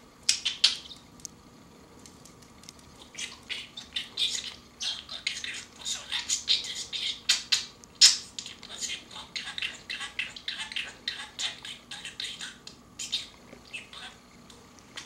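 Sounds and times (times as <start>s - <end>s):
budgerigar chattering and warbling: 3.0s - 14.2s.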